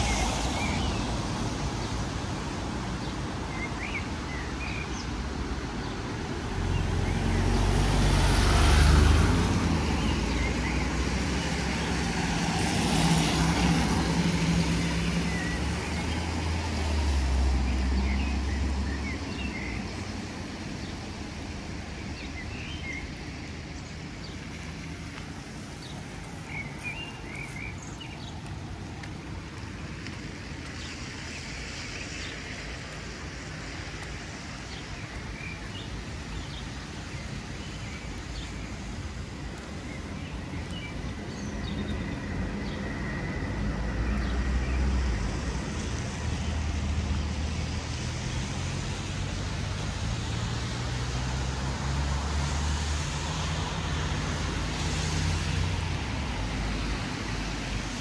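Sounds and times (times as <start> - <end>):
traffic hum: 0.0 - 58.0
birds chirping: 14.8 - 43.4.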